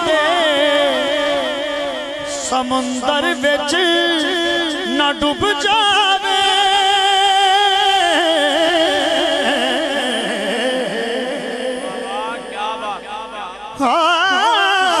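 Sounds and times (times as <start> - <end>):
man singing into microphone: 0.0 - 15.0.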